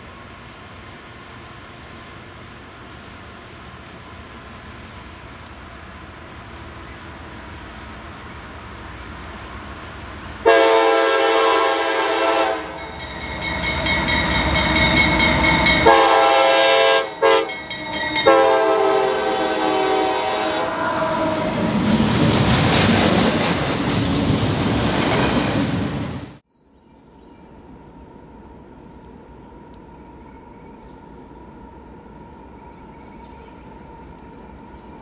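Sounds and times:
locomotive engine and rail noise: 0:00.0 - 0:35.0
locomotive air horn blasts: 0:10.4 - 0:13.0, 0:14.3 - 0:21.7.

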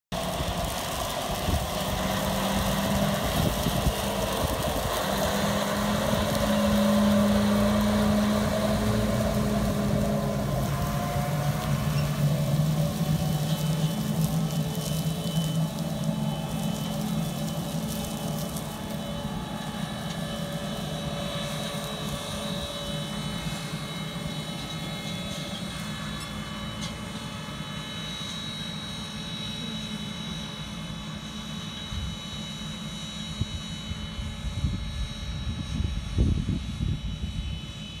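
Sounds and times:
high whine: 0:00.1 - 0:38.0
tractor engine droning: 0:00.1 - 0:38.0
wind buffeting microphone: 0:00.3 - 0:19.9, 0:33.4 - 0:37.8.

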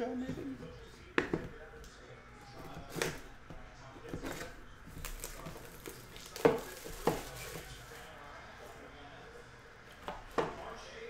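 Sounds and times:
plastic wrap crinkling and tearing: 0:04.2 - 0:08.1.

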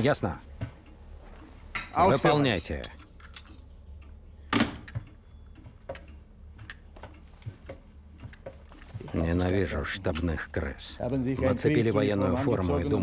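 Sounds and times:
faint scattered clicks: 0:02.8 - 0:04.2.

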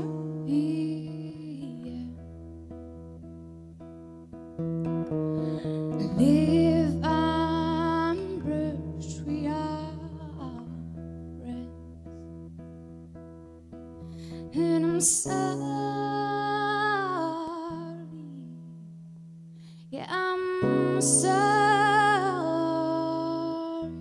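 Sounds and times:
woman singing: 0:00.0 - 0:02.4, 0:05.3 - 0:12.1, 0:14.3 - 0:18.8, 0:19.8 - 0:24.0
acoustic guitar: 0:00.0 - 0:24.0.

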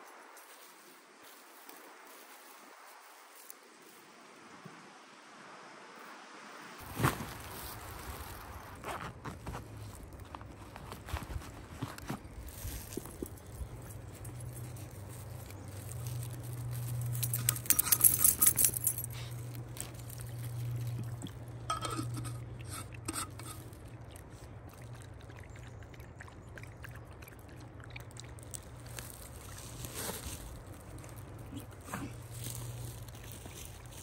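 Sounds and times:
steady low hum: 0:08.6 - 0:34.0
dog lapping water: 0:22.2 - 0:28.8.

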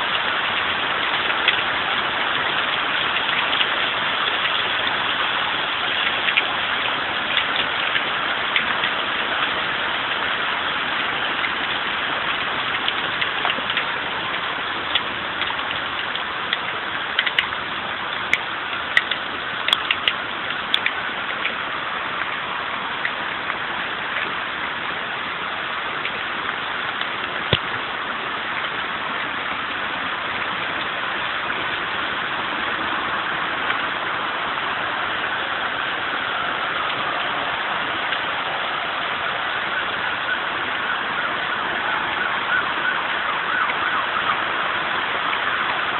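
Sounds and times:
hailstones clicking on surfaces: 0:00.0 - 0:21.6
hail hissing: 0:00.0 - 0:45.9.

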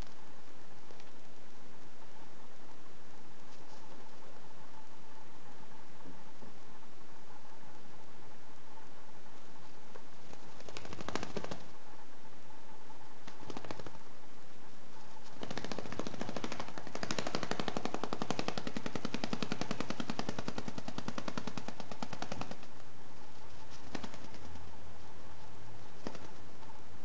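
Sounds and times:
bird wingbeats against fabric: 0:10.0 - 0:11.8, 0:13.2 - 0:14.1, 0:15.0 - 0:26.8.

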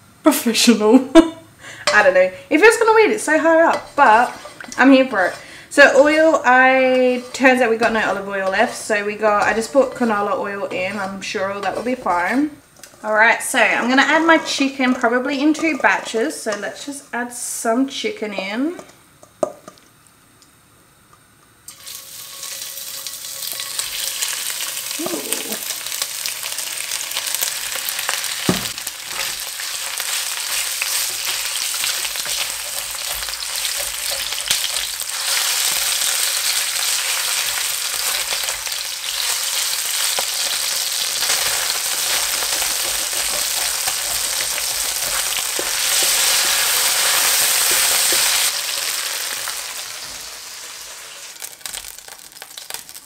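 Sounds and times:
chicken sizzling in hot oil: 0:21.7 - 0:53.0.

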